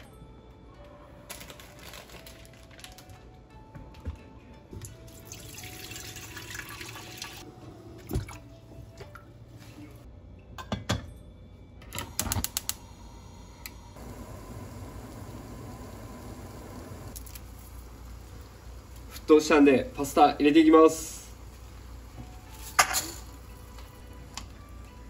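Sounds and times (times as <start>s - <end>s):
water boiling in a pot: 5.1s - 7.5s, 12.2s - 24.6s
gas hob igniter clicks: 11.9s - 12.8s.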